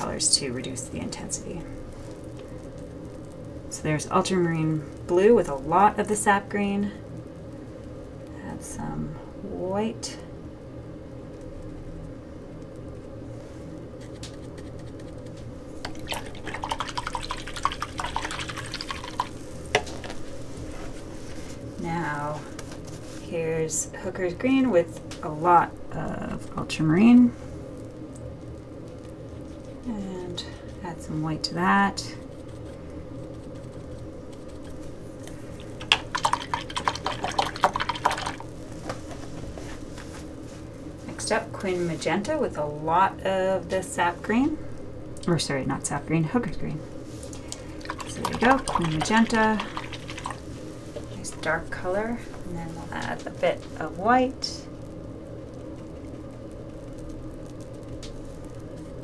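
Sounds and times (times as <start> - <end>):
faint steady hum: 0.0 - 59.0
paintbrush wet clicks: 14.0 - 19.9, 33.3 - 38.4
paintbrush rinsed in water: 15.8 - 20.9, 34.5 - 38.6, 47.5 - 52.0.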